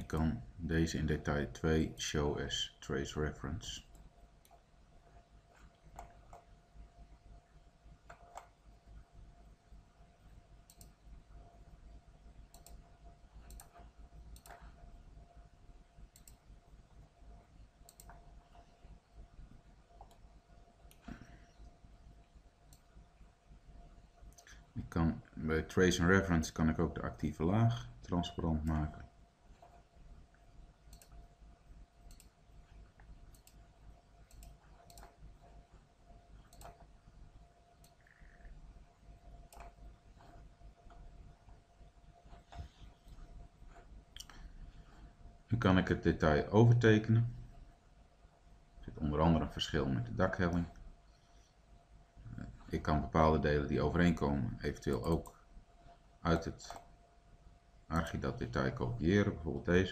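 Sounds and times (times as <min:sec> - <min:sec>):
low steady hum: 0:00.0 - 0:59.9
computer mouse clicks: 0:05.5 - 0:06.5, 0:08.0 - 0:08.6, 0:10.6 - 0:11.6, 0:12.5 - 0:14.8, 0:16.1 - 0:16.5, 0:17.8 - 0:18.8, 0:19.9 - 0:22.9, 0:29.5 - 0:31.3, 0:32.0 - 0:36.9, 0:37.8 - 0:38.6, 0:39.4 - 0:41.1, 0:54.8 - 0:55.4, 0:56.7 - 0:56.9.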